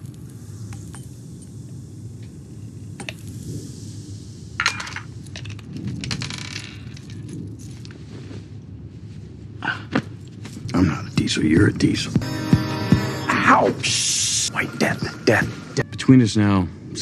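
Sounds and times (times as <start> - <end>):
low steady rumble: 0.0 - 12.2
rattly patter: 4.6 - 8.0.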